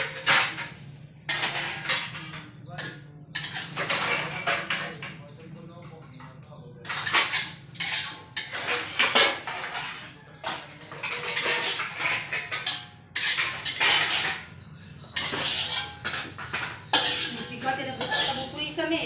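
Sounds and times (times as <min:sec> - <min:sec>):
spatula scraping and knocking a wok: 0:00.0 - 0:18.8.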